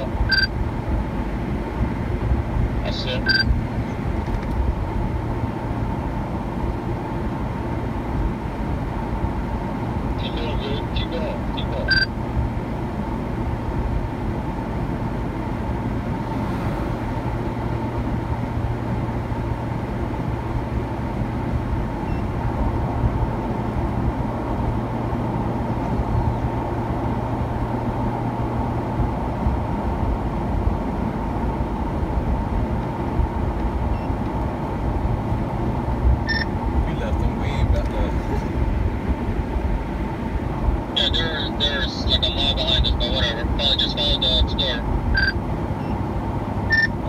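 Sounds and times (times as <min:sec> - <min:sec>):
car road and engine noise: 0:00.0 - 0:47.0
faint steady whine: 0:40.6 - 0:46.0.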